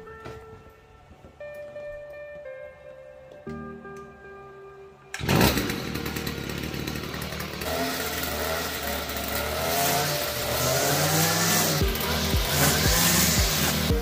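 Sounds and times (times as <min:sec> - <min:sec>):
string trimmer engine running: 0:05.2 - 0:14.0.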